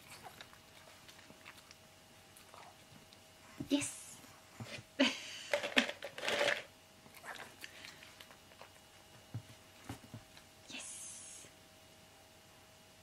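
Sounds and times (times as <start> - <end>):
plastic bowl clicking and rustling: 5.5 - 6.7.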